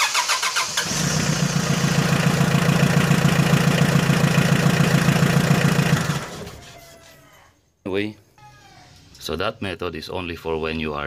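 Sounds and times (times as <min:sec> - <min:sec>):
starter motor cranking: 0:00.0 - 0:01.1
diesel engine idling: 0:00.6 - 0:06.6.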